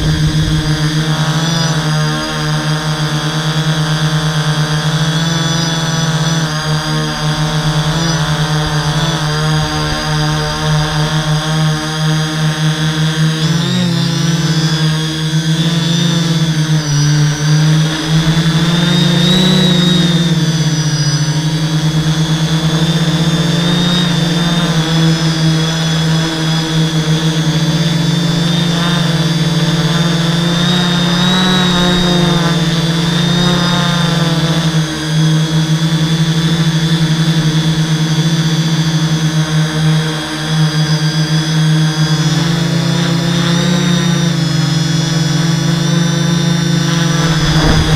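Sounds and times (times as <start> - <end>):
drone motors buzzing: 0.0 - 34.2, 45.9 - 47.9
high motor whine: 0.0 - 35.8, 40.9 - 47.9.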